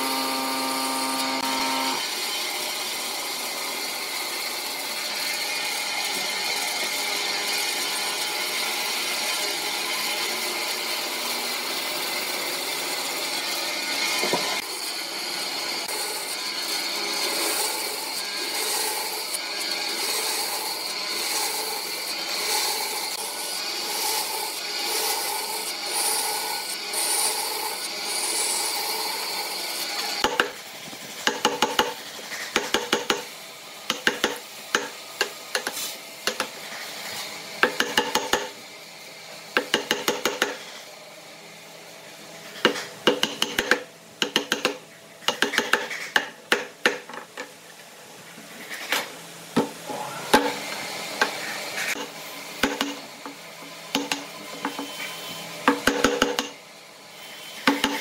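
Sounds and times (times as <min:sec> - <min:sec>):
band saw cutting wood: 0:00.0 - 0:38.7, 0:49.8 - 0:58.0
mallet striking chisel: 0:42.7 - 0:47.0, 0:55.7 - 0:56.6.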